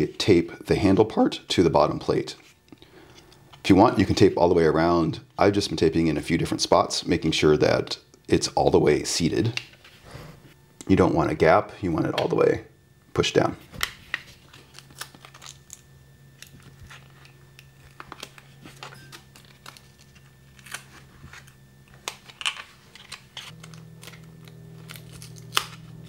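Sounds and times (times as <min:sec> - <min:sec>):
faint low hum: 0:00.0 - 0:26.0
tape crackling: 0:13.7 - 0:26.0.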